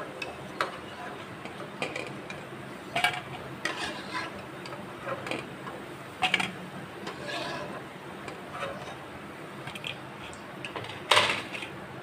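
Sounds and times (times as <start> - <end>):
skimmer scraping metal pan: 2.9 - 5.5, 6.2 - 9.0.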